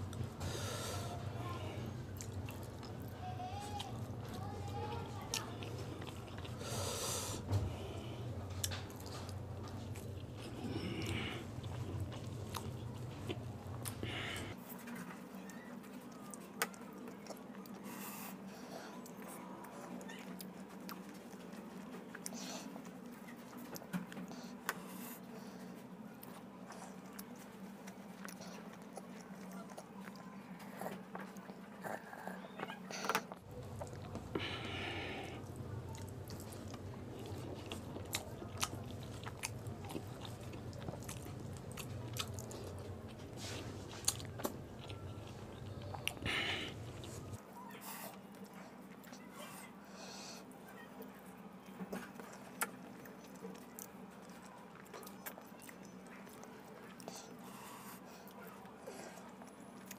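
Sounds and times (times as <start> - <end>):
steady low hum: 0.0 - 14.6, 33.0 - 47.5
chewing and lip smacks: 1.2 - 25.1, 26.1 - 49.6, 51.0 - 59.9.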